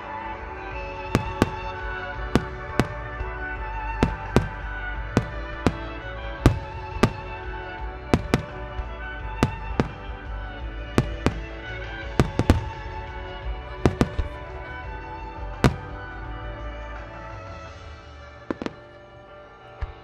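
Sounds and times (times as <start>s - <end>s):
music playing: 0.0s - 20.0s
firework shells bursting: 1.1s - 13.2s, 13.8s - 14.6s, 18.5s - 19.0s.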